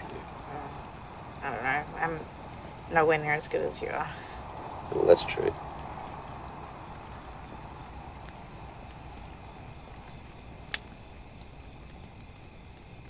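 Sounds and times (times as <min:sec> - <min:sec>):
campfire crackling: 0:00.0 - 0:13.0
crickets chirring: 0:00.0 - 0:13.0.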